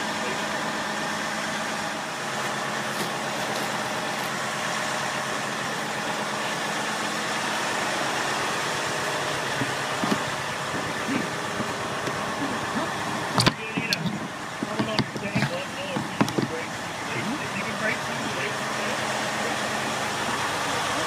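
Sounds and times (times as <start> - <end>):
engine running: 0.0 - 21.0
screwdrivers knocking on plastic drum: 13.4 - 16.5.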